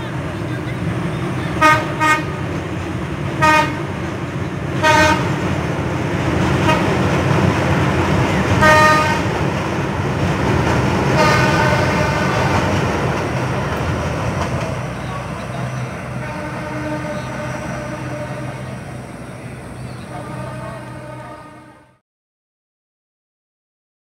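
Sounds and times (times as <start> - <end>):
train rumbling across steel bridge: 0.0 - 22.0
train horn toots: 1.6 - 2.4, 3.4 - 3.9, 4.8 - 5.4, 6.6 - 7.0, 8.6 - 9.4, 11.1 - 12.7, 16.1 - 18.8, 20.0 - 22.0.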